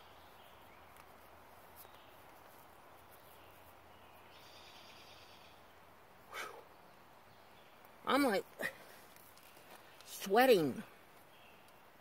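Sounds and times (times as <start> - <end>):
faint high-pitched chirping: 3.1 - 5.6.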